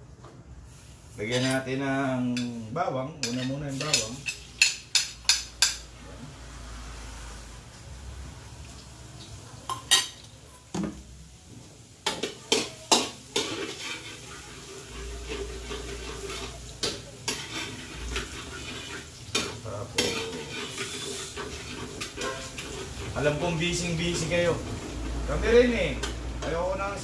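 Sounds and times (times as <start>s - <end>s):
metal ladle scraping wok: 1.2s - 1.8s, 3.2s - 5.8s, 13.2s - 25.3s
garlic sizzling in hot oil: 3.2s - 5.8s, 11.0s - 27.0s.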